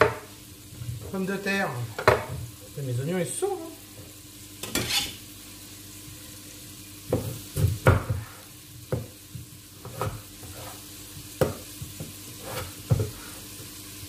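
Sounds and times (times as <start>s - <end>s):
knife chopping on wooden board: 7.1s - 8.3s, 9.8s - 10.7s, 11.4s - 13.2s.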